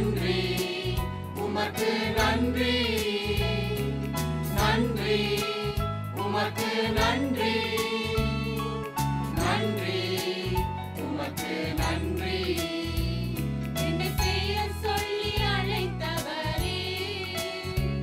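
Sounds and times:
mixed choir singing a hymn: 0.0s - 18.0s.

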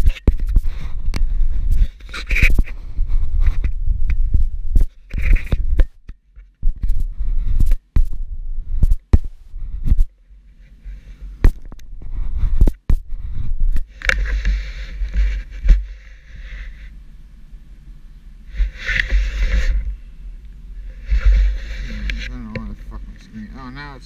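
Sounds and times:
scraping against microphone: 0.0s - 17.0s, 18.4s - 24.0s
low rumble: 2.7s - 5.8s, 7.0s - 10.4s.

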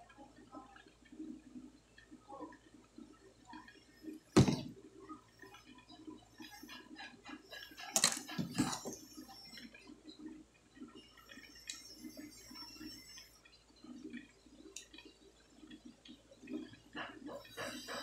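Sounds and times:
plastic housing clattering: 8.0s - 9.0s.

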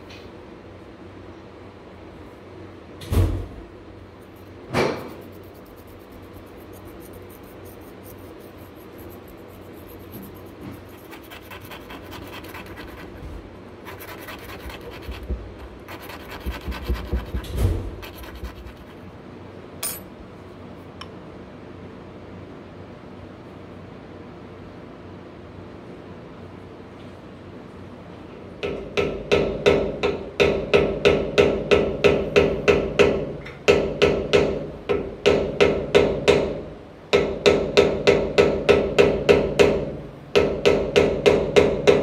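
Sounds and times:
thump: 4.7s - 5.1s
metal file rasping on metal: 5.2s - 13.2s, 13.9s - 15.2s, 15.9s - 17.4s, 18.0s - 19.0s.

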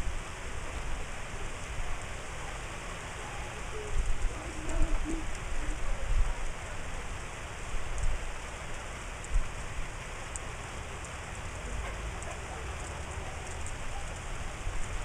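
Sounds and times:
rain falling: 0.0s - 15.0s
wind buffeting microphone: 3.6s - 8.5s.

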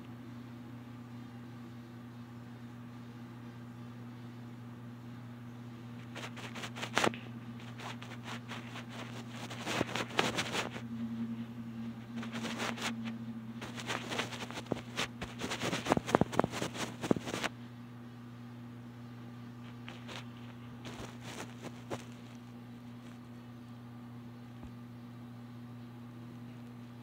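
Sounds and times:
low electrical hum: 0.0s - 27.0s
rustling: 6.0s - 10.8s, 12.0s - 17.5s, 19.6s - 23.3s.

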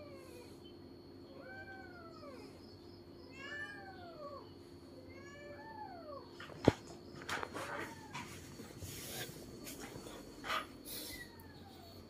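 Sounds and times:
cat meowing: 3.3s - 4.4s.

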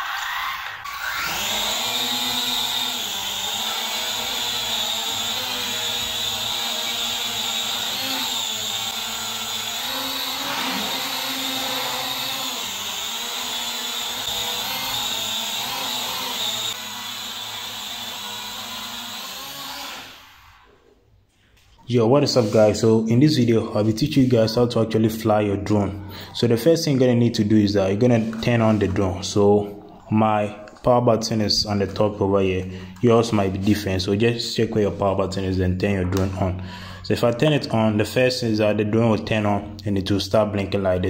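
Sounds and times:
drone motors whining: 0.0s - 20.8s.

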